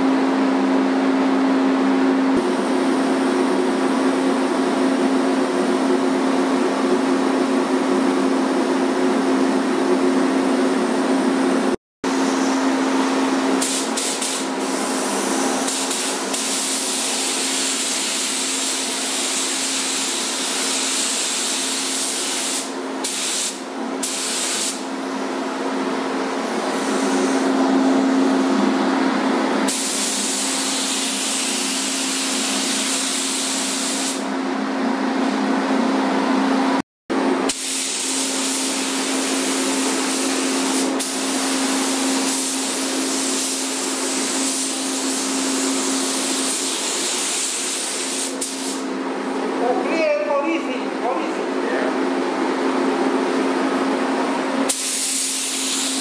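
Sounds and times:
paint spray gun hissing: 13.6 - 24.8, 29.7 - 34.2, 37.5 - 48.8, 54.7 - 56.0.

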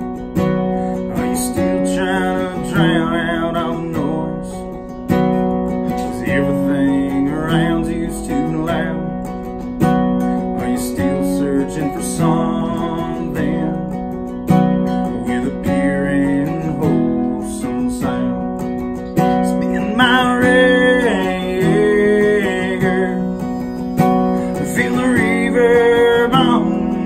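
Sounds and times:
acoustic guitars strumming: 0.0 - 27.0
harmonica melody: 16.6 - 27.0.

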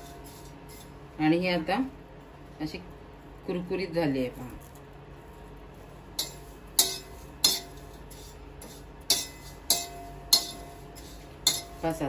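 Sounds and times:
metal spatula clinking on steel pan: 6.2 - 8.0, 9.1 - 11.9.

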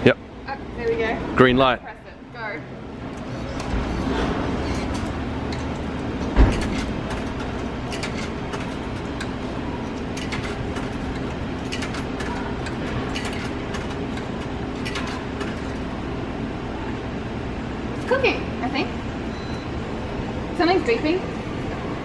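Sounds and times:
steady low hum: 0.0 - 22.0
coins clicking into coin slot: 6.5 - 15.9.

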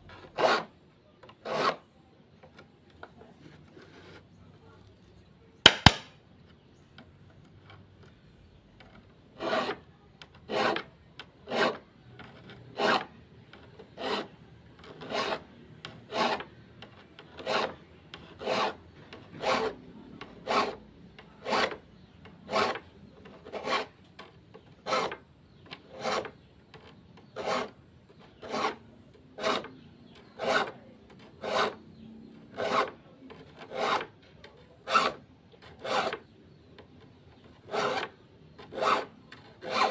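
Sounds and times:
file rasping on saw teeth: 1.3 - 1.9, 9.4 - 24.0, 24.6 - 34.2, 34.8 - 36.8, 37.4 - 39.9.

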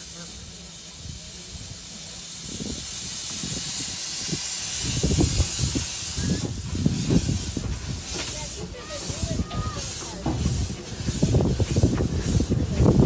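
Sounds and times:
steam locomotive hissing: 0.0 - 13.0.

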